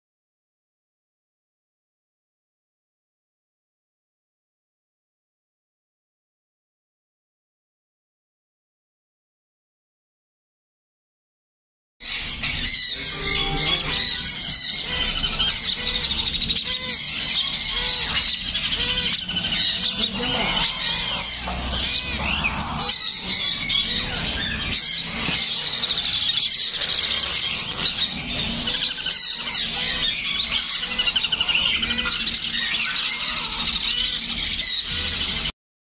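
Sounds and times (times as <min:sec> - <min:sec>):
parakeet chicks squawking: 0:12.0 - 0:35.5.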